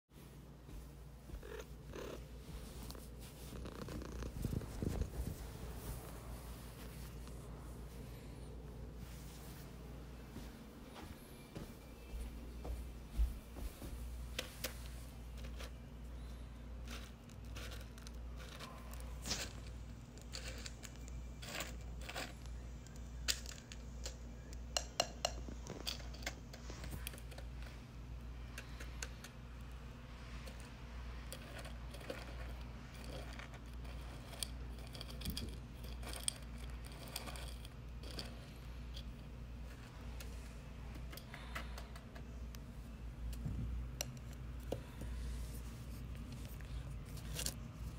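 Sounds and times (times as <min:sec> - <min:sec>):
steady low hum: 0:00.2 - 0:47.9
dry kibble rattling into bowls: 0:15.3 - 0:24.5, 0:31.2 - 0:39.1.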